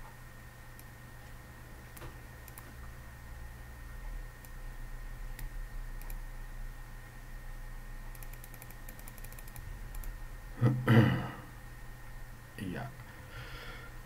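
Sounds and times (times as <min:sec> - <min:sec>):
faint electrical hum: 0:00.0 - 0:14.0
computer mouse clicks: 0:01.9 - 0:02.8, 0:05.3 - 0:06.2, 0:08.1 - 0:10.2.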